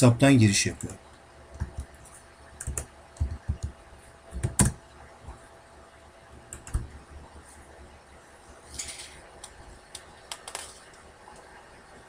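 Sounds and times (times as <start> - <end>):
keyboard typing: 1.6 - 4.8, 6.5 - 6.9.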